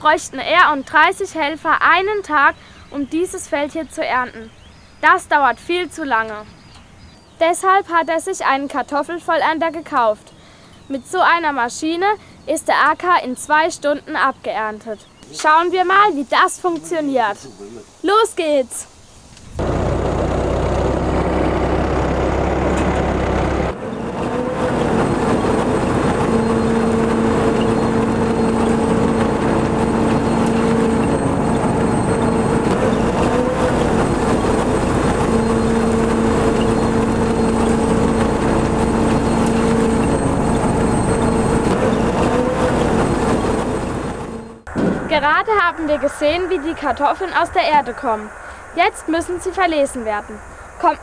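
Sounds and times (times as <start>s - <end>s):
tractor engine running: 19.5s - 48.7s
humming tones: 19.6s - 50.5s.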